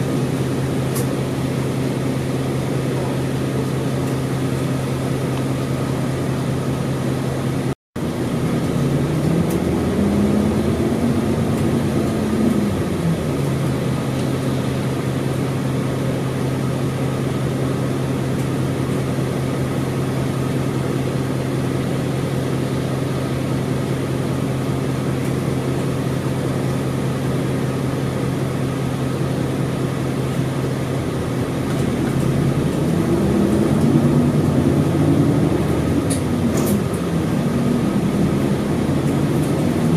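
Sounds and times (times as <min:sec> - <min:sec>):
bus diesel engine running: 0:00.0 - 0:39.9.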